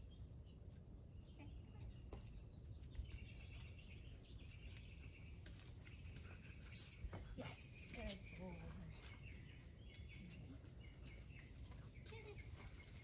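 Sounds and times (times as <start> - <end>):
distant bird chirps: 0.0 - 13.0
low background hum: 0.0 - 13.0
thin high chirping: 6.6 - 7.1.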